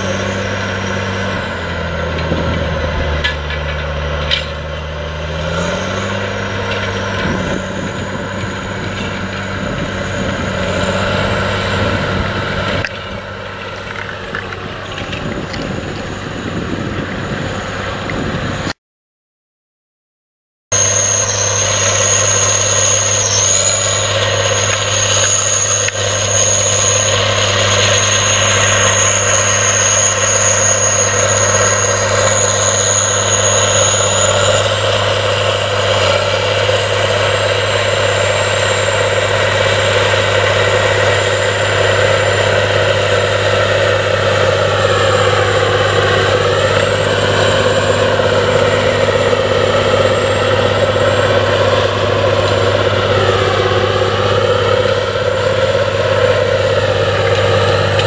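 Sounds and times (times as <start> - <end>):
tractor diesel engine under load: 0.0 - 18.8, 20.7 - 58.0
thin high whine: 20.8 - 58.0.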